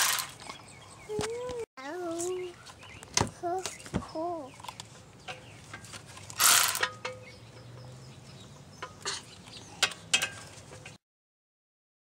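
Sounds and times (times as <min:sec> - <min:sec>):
metal tools clicking and ratcheting: 0:00.0 - 0:00.4, 0:04.6 - 0:07.3, 0:08.8 - 0:11.0
loud rasping burst: 0:06.4 - 0:06.8.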